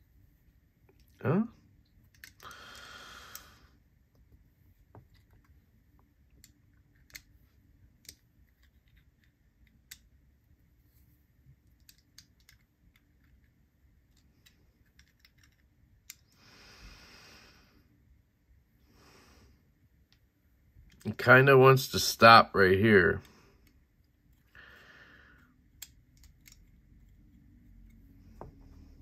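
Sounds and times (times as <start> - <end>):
low steady hum: 0.0 - 29.0
small metal tool clicks: 25.8 - 26.7.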